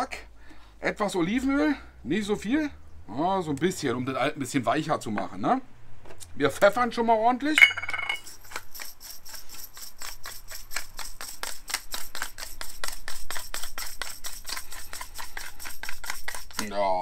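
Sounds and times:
pepper mill grinding: 7.6 - 16.9.

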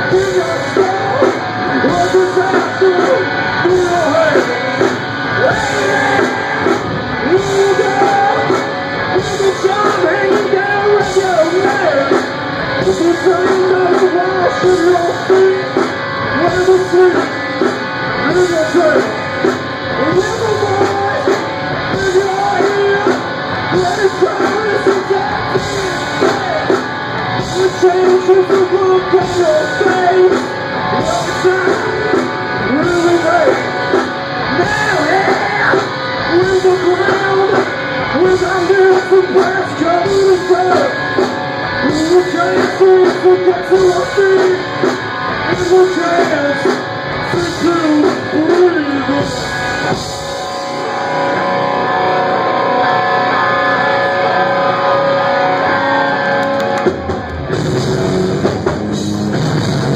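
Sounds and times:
person singing into microphone: 0.0 - 12.2, 12.8 - 17.6, 19.9 - 33.8, 34.4 - 41.1, 41.8 - 44.8
drums: 0.0 - 59.9
electric guitar: 0.0 - 59.9.

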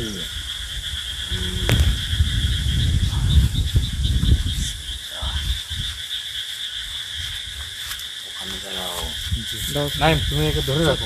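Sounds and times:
frogs and insects calling: 0.0 - 11.0
low thumps and rumble: 1.3 - 4.8.

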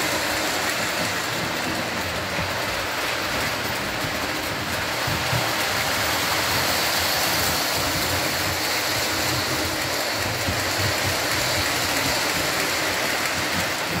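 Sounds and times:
model train rolling: 0.0 - 14.0.

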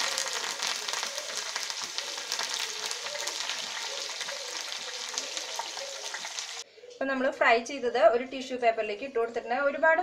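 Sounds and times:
food deep-frying in oil: 0.0 - 6.6.

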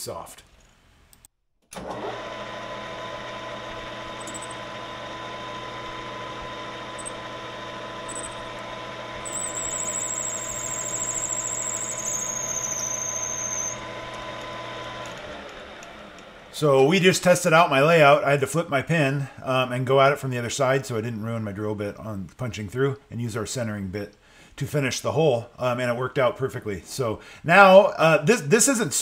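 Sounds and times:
metal lathe humming: 1.8 - 16.8
drill bit squeaking: 4.1 - 4.7, 8.0 - 15.0
high wavering squeal: 9.2 - 13.8.

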